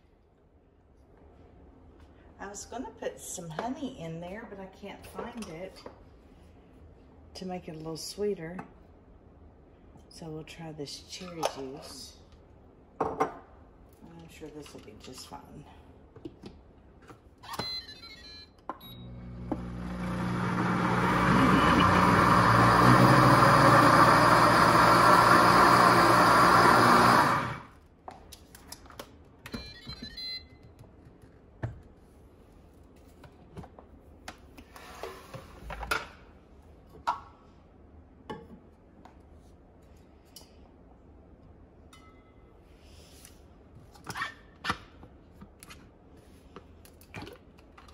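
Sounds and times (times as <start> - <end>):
blender motor running: 19.0 - 27.7.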